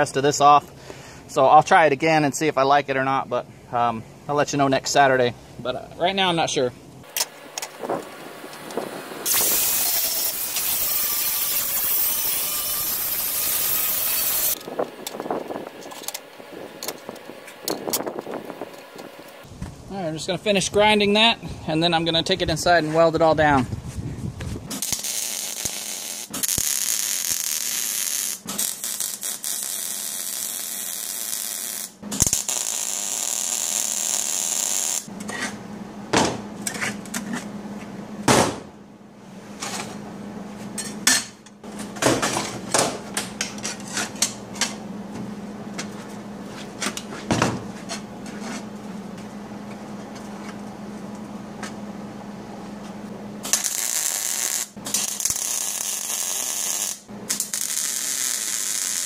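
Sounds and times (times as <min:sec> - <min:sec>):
angle grinder grinding steel: 0:09.2 - 0:14.6
steady low hum: 0:35.0 - 0:56.3.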